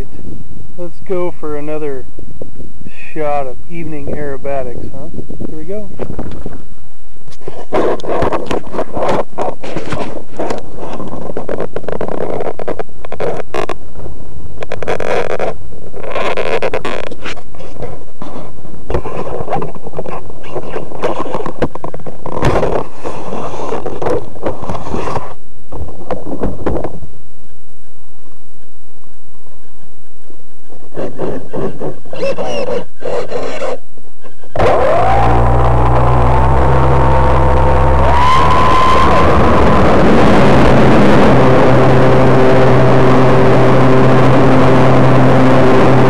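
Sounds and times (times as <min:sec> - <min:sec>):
handling noise on microphone: 0:03.2 - 0:27.1
model airplane motor revving: 0:34.6 - 0:46.0.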